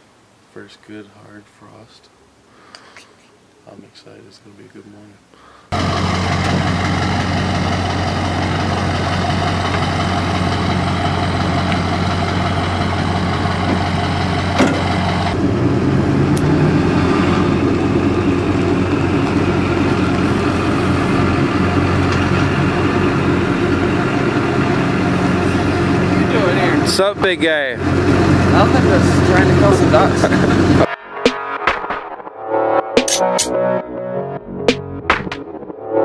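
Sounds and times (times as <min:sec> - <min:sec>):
truck engine idling: 0:05.8 - 0:30.8.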